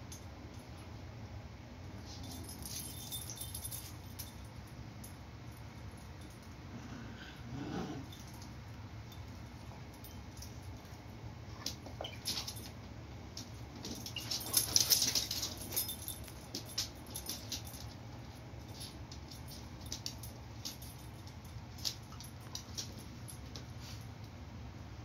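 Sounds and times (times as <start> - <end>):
paws clicking on wooden floor: 13.4 - 23.8.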